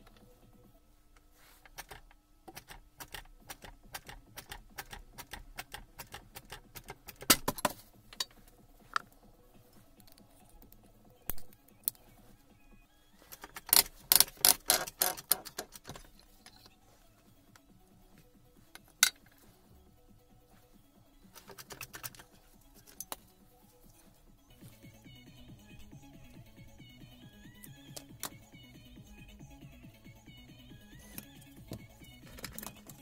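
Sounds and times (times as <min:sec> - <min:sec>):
ratchet handle clicking: 0:13.6 - 0:15.9.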